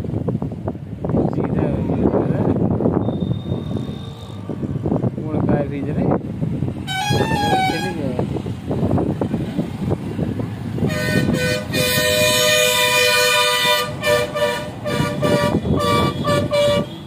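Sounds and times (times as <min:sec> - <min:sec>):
vehicle horn honking: 0:03.0 - 0:04.5, 0:06.9 - 0:08.0, 0:10.9 - 0:17.0.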